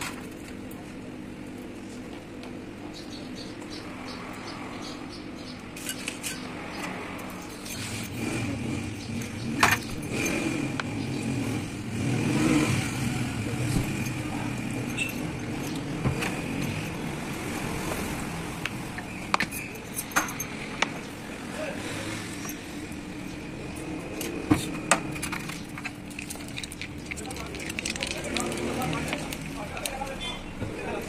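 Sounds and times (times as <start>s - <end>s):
vehicle engine running: 7.3s - 21.4s
metal parts clinking in tray: 13.7s - 17.1s, 19.4s - 20.6s.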